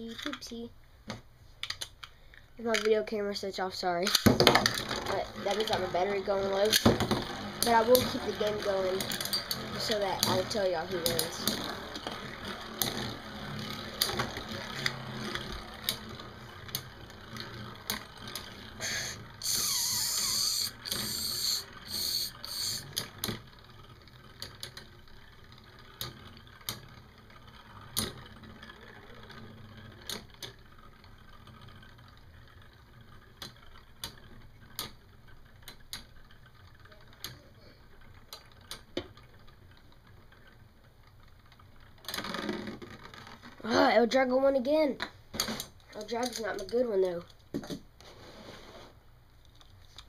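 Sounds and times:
spinning tops grinding: 3.8 - 37.2
spinning tops clacking: 3.9 - 23.2.

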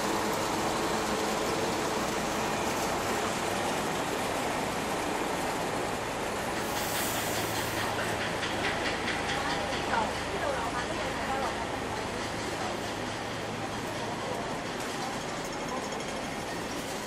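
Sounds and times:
road traffic: 0.0 - 12.7
short hiss: 6.6 - 8.0.

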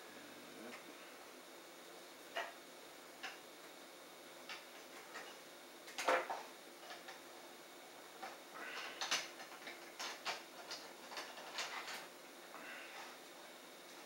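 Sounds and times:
plastic parts clicking and tapping: 9.0 - 12.1.

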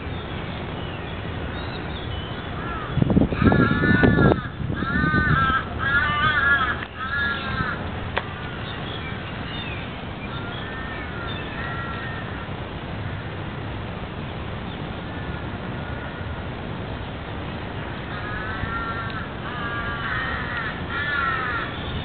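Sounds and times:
low background noise: 0.0 - 22.0
crows cawing: 2.6 - 8.6, 10.3 - 12.5, 15.1 - 16.3, 18.1 - 21.8.

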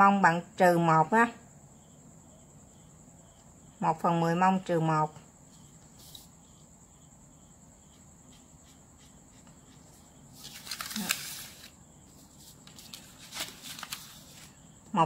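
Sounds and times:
faint steady high whine: 0.0 - 15.0
paper rustling and sliding: 5.9 - 6.3, 9.4 - 14.6.

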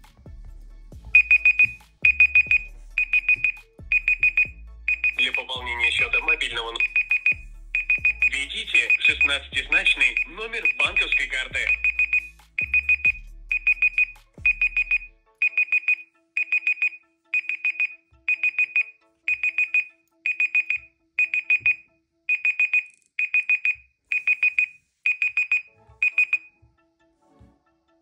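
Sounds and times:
phone timer alarm beeping: 1.1 - 26.6.

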